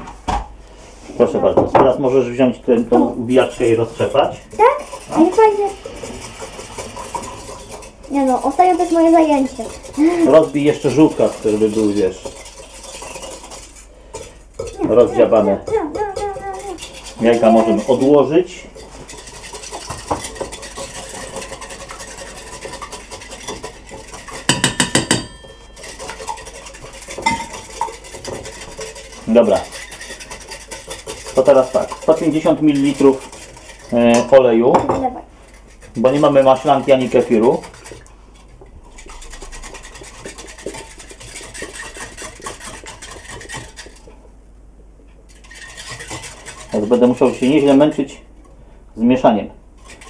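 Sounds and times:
whisk clicking in a bowl: 3.3s - 34.8s, 35.5s - 44.1s, 45.3s - 48.2s, 49.8s - 50.0s
metal clanking against bowl: 18.8s - 35.2s.

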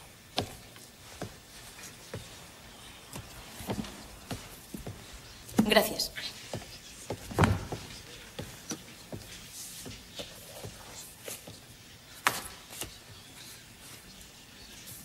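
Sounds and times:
book thud: 7.3s - 7.9s.

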